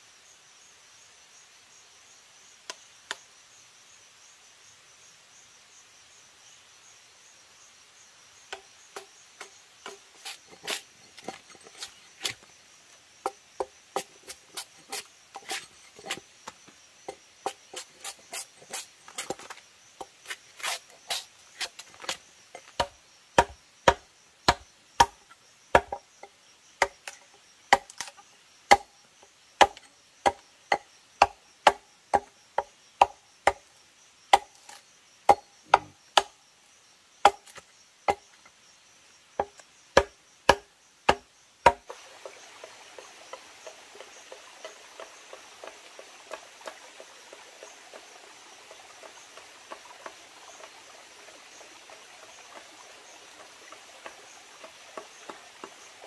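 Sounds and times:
high insect drone: 0.0 - 56.0
blade chopping wood: 8.5 - 12.5, 13.2 - 26.0, 26.8 - 28.9, 29.6 - 33.7, 34.3 - 36.3, 37.2 - 38.2, 39.4 - 41.9.

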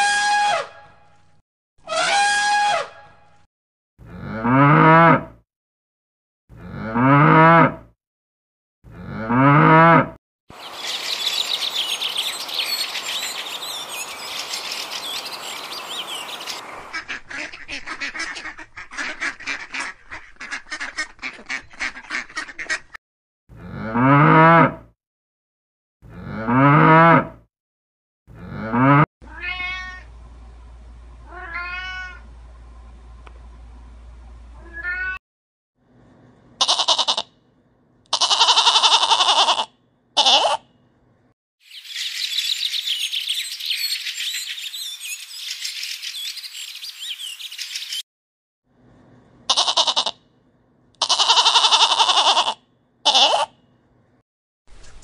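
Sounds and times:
cattle mooing: 4.1 - 5.2, 6.6 - 7.8, 9.0 - 10.1, 23.6 - 24.8, 26.1 - 27.4, 28.4 - 29.0
ducks calling: 10.5 - 23.0
cat meowing: 29.3 - 30.1, 31.3 - 32.2, 34.6 - 35.2.

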